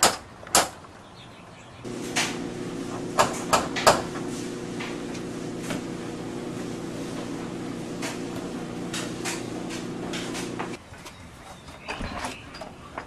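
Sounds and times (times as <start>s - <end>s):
steady low hum: 1.9s - 10.8s.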